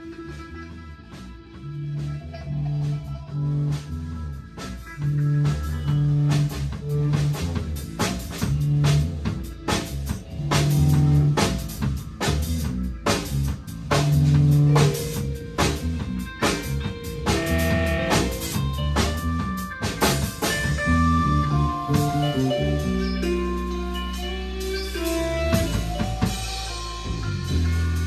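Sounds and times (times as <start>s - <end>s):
live band playing instrumental music: 0.0s - 28.0s
drums striking: 4.6s - 28.0s
long low bass note: 17.1s - 18.9s.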